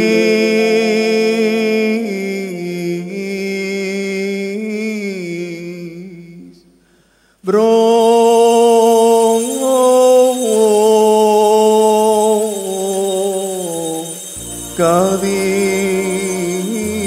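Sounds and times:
man chanting a long note: 14.6s - 17.0s.

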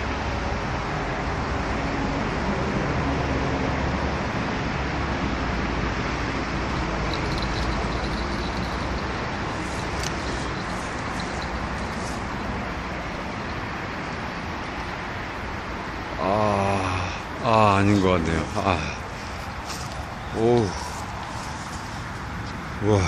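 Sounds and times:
distant road traffic rumble: 0.0s - 23.0s.

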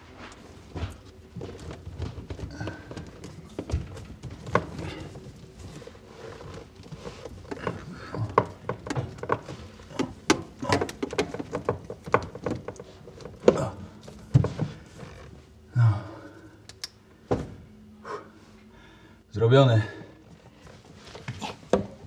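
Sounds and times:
plastic parts clicking and knocking: 6.4s - 14.8s.

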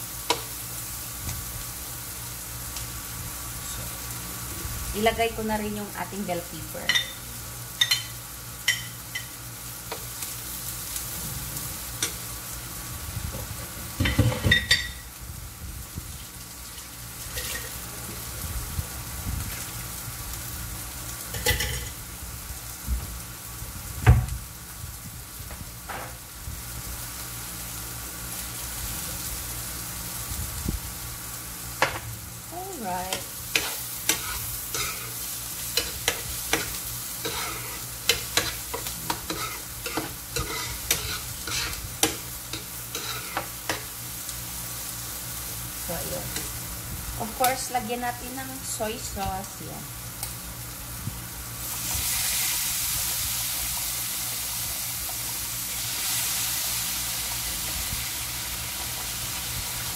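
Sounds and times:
vegetables sizzling in frying pan: 0.0s - 59.9s
metal spoon scraping pan: 35.8s - 43.5s.

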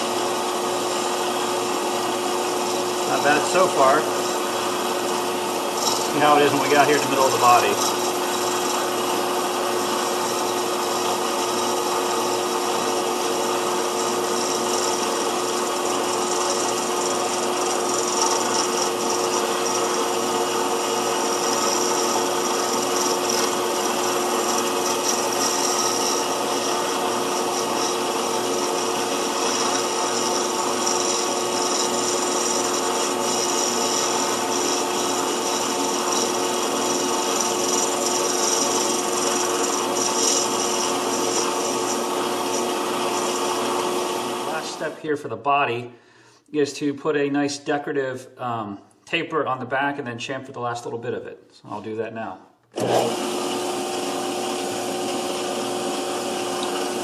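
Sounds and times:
metal lathe humming: 0.0s - 45.0s, 52.8s - 57.0s
scraping hiss of cutting tool: 20.7s - 43.5s.

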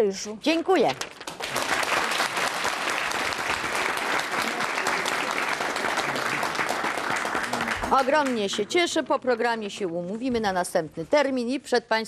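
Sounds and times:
audience applauding: 1.2s - 8.7s.

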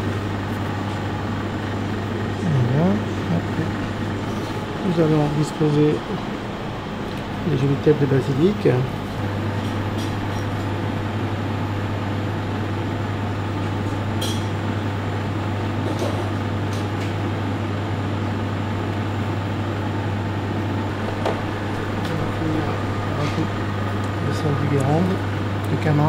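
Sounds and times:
ventilation hum and rush: 0.0s - 26.0s.

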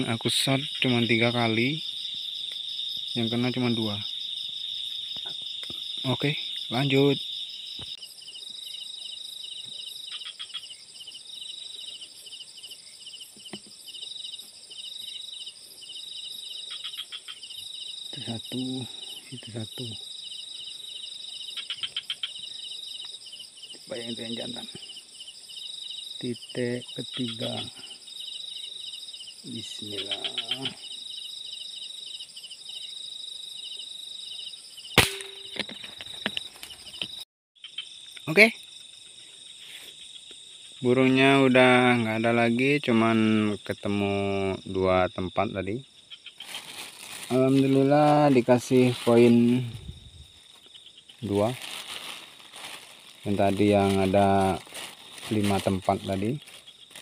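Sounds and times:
night insects chirping: 0.0s - 57.0s
air rifle shot: 35.0s - 35.6s.

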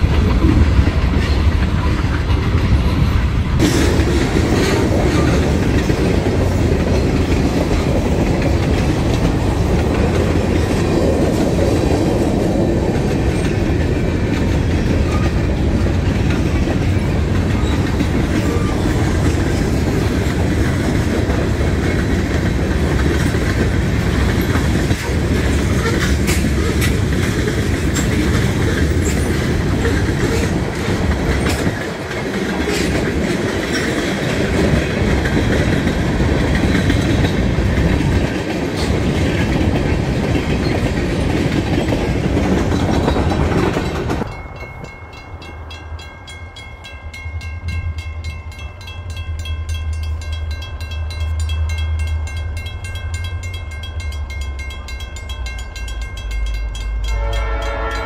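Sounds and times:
train wheels clattering over rails: 0.0s - 46.9s
crossing bell ringing: 42.8s - 58.0s.

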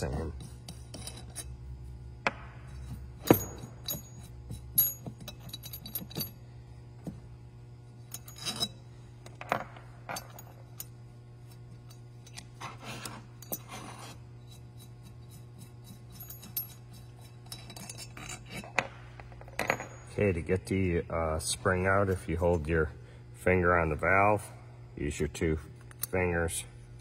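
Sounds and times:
steady low hum: 0.0s - 27.0s
metal scrapes: 12.6s - 18.8s.

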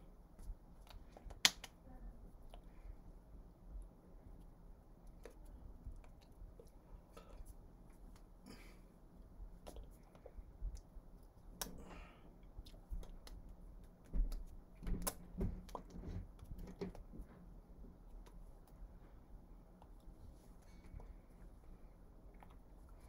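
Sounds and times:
faint low hum: 0.0s - 23.0s
hands tapping and slapping: 0.4s - 1.8s, 12.9s - 17.3s.

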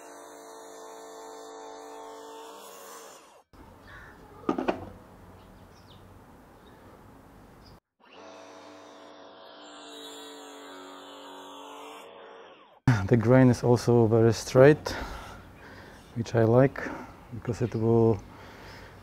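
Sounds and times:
wooden board knocking on saw table: 4.5s - 5.0s.

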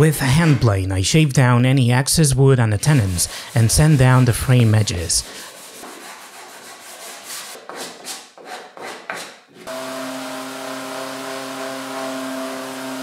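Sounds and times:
hand sanding wood: 2.8s - 13.0s
orbital sander humming: 9.7s - 13.0s.

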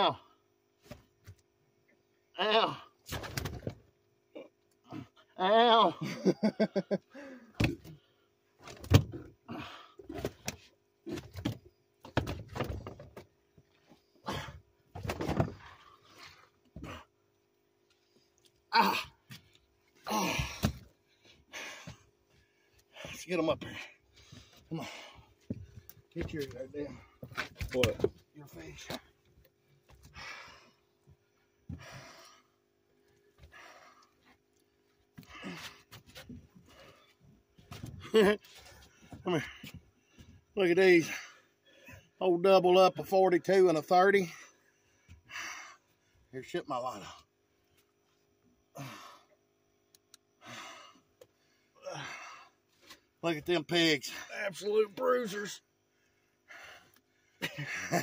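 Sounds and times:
man breathing hard: 7.1s - 7.6s, 30.0s - 31.0s, 31.6s - 32.6s, 33.2s - 34.4s, 50.4s - 52.6s, 56.3s - 57.4s
man grunting: 18.7s - 19.2s, 20.1s - 20.7s, 51.8s - 52.3s.

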